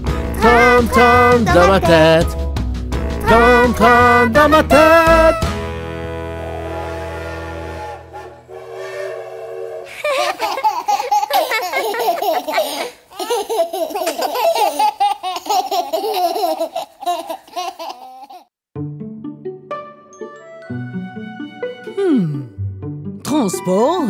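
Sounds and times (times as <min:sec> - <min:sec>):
song: 0:00.2 - 0:10.2, 0:18.8 - 0:22.9
cartoon children and baby laughing: 0:00.4 - 0:02.4, 0:03.2 - 0:05.5, 0:09.9 - 0:18.5.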